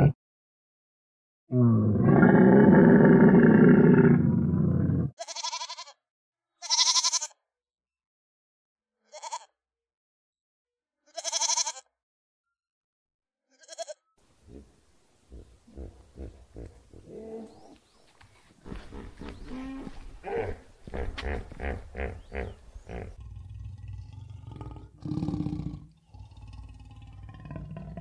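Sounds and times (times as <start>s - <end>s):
long loud animal call: 13.7s - 17.8s, 18.6s - 28.0s.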